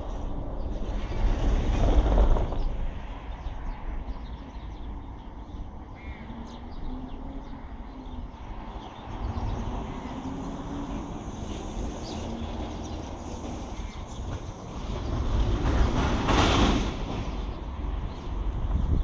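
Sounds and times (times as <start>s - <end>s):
wind gusting on microphone: 0.0s - 19.0s
bird calls: 2.1s - 15.8s.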